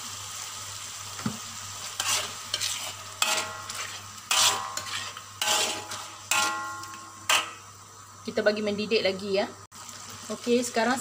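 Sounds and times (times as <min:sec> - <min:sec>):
sauce sizzling: 0:00.0 - 0:11.0
metal spatula scraping a wok: 0:01.8 - 0:07.7.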